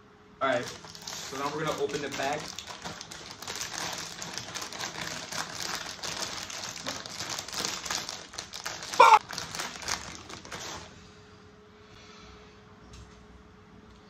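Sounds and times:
plastic chip bag crinkling: 0.5 - 10.9.

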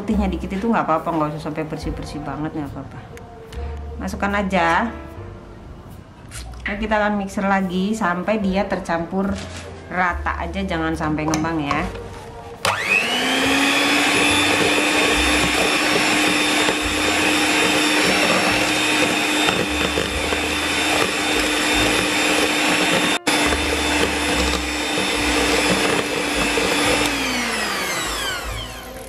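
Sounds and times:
electric hand mixer running: 12.6 - 29.0.

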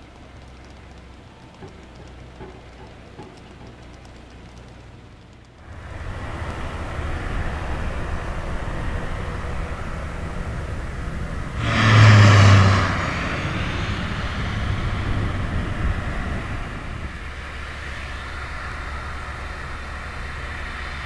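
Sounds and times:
steady low rumble: 5.6 - 21.0
vehicle passing by: 5.6 - 21.0.

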